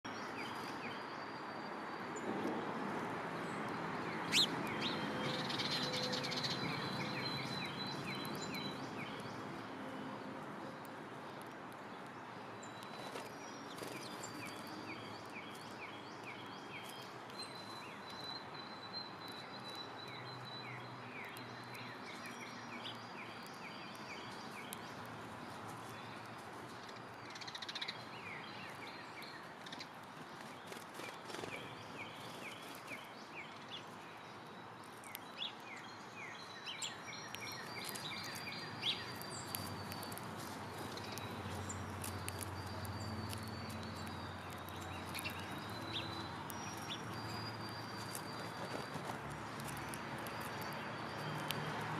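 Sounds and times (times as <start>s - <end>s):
songbirds chirping: 0.0s - 51.9s.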